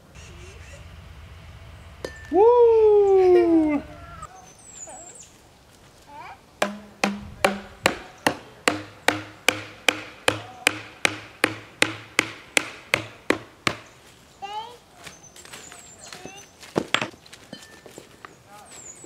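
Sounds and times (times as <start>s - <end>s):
metal rod pounded into ground: 6.6s - 8.1s.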